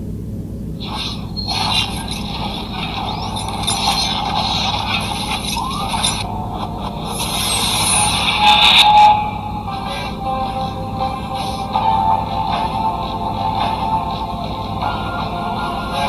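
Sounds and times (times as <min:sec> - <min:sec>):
low drone: 0:00.0 - 0:16.0
crackling burst: 0:00.7 - 0:08.8
hissing whooshes: 0:00.8 - 0:06.3, 0:07.0 - 0:08.6.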